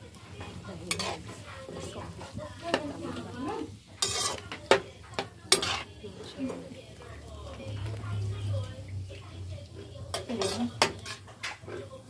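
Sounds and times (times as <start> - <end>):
ladle scraping and knocking wok: 0.0 - 12.0.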